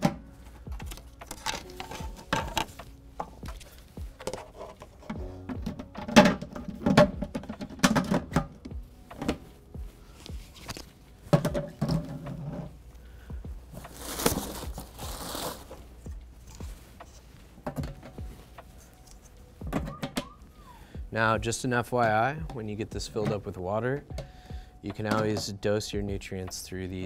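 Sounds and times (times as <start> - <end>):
plastic lids knocking and clattering: 0.0 - 3.6, 4.2 - 9.4, 11.3 - 12.7, 17.6 - 18.2, 24.9 - 25.5.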